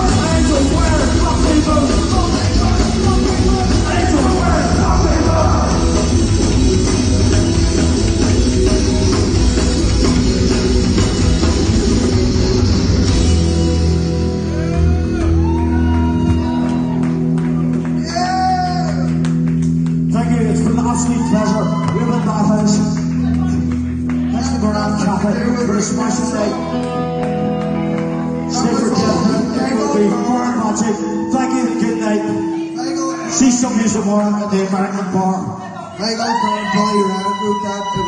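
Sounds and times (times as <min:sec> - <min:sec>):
voices shouting and singing: 0:00.0 - 0:08.0, 0:20.8 - 0:38.0
live rock band playing: 0:00.0 - 0:35.6.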